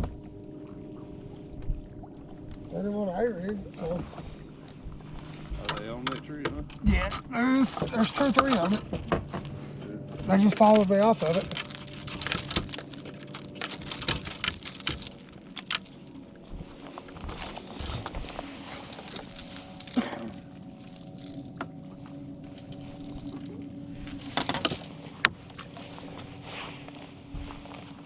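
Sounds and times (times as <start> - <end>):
trolling motor humming: 0.0 - 28.0
footsteps on boat deck: 8.8 - 28.0
tackle clicks and knocks: 10.7 - 16.0.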